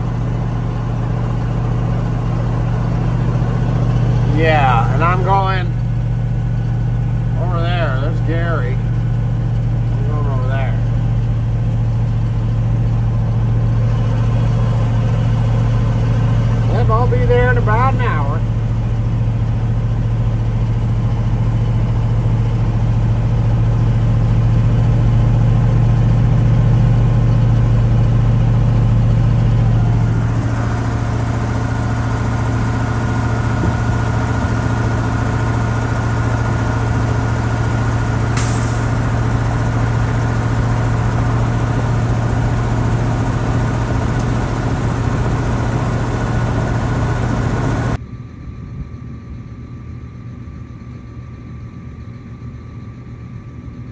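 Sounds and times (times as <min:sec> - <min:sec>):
tractor diesel engine running: 0:00.0 - 0:53.9.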